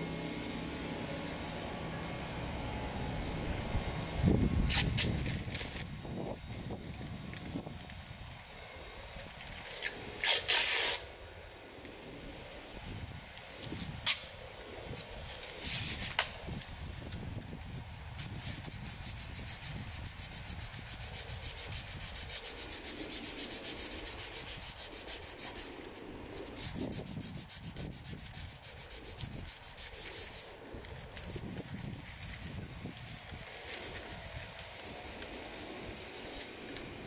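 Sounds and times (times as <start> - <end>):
sandpaper rubbing on metal panel: 4.2 - 5.8, 9.7 - 11.1, 17.6 - 36.8.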